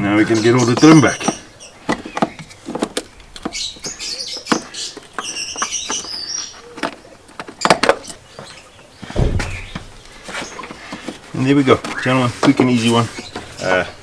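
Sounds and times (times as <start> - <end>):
birds chirping: 0.0 - 14.0
dull thump: 9.1 - 10.1.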